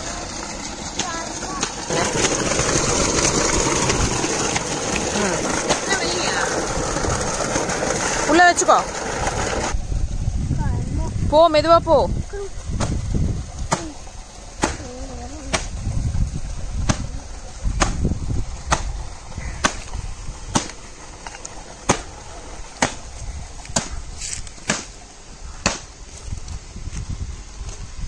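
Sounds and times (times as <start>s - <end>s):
flip-flop footsteps on dirt: 22.8s - 25.0s.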